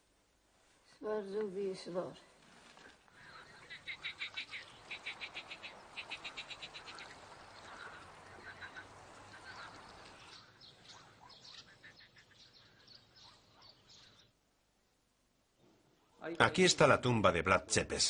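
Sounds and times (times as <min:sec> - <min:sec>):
frogs calling in rattling pulses: 0:03.2 - 0:14.2.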